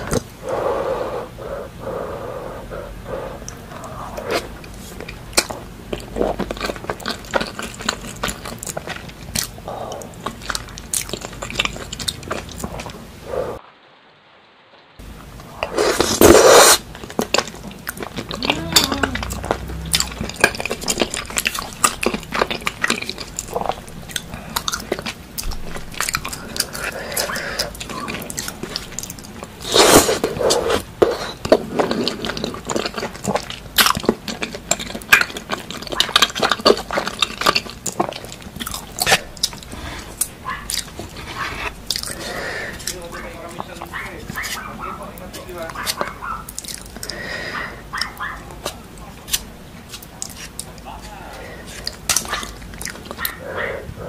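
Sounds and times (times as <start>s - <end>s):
chewing and biting: 3.4s - 13.0s, 15.9s - 53.4s.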